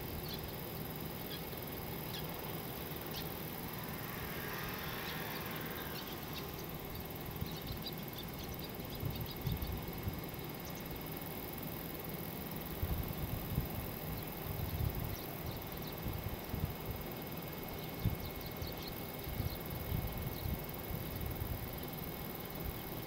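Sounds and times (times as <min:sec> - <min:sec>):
steady hiss: 0:00.0 - 0:17.6.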